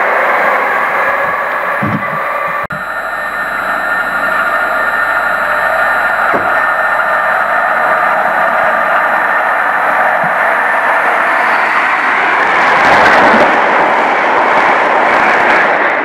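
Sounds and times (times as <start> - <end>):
loud rushing noise: 0.0 - 16.0.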